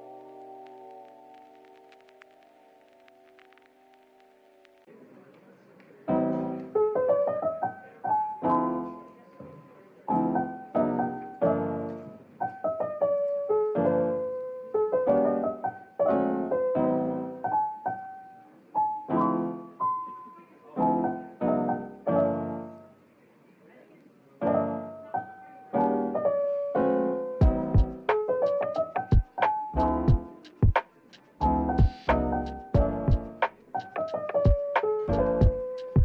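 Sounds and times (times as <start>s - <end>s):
solo piano playing: 6.1s - 22.9s, 24.4s - 30.5s, 31.4s - 36.0s.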